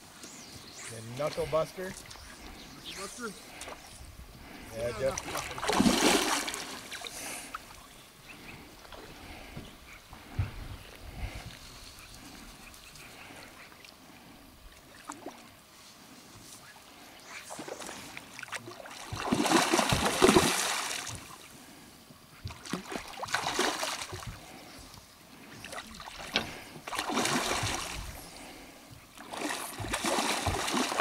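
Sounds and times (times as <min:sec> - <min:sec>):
fish splashing in water: 0:05.2 - 0:07.2, 0:17.4 - 0:21.4, 0:22.4 - 0:24.4, 0:25.6 - 0:28.6, 0:29.2 - 0:31.0.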